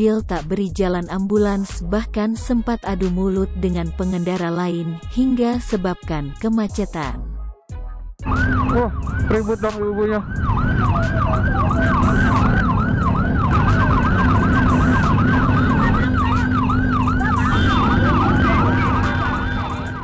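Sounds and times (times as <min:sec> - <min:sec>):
ambulance siren yelping: 0:08.2 - 0:20.0.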